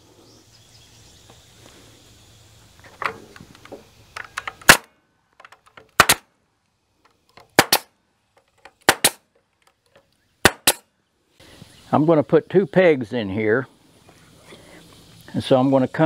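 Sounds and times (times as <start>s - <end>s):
nail gun shots into wood: 4.3s - 4.9s, 5.5s - 6.3s, 7.4s - 7.9s, 8.7s - 9.3s, 10.4s - 10.9s.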